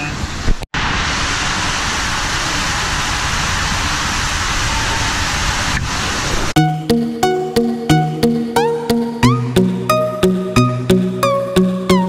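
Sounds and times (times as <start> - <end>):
loud rushing noise: 0.2 - 6.6.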